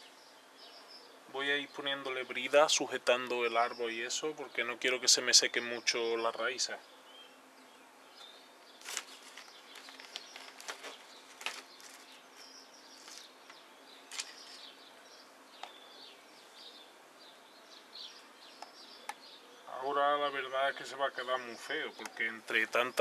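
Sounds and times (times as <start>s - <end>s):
birds chirping: 0.0s - 23.0s
cable tie clicks and rustles: 8.8s - 12.1s.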